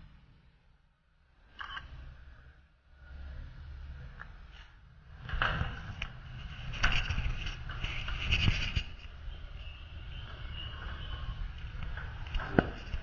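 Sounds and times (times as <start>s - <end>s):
camera handling rubbing and knocks: 5.3s - 9.2s.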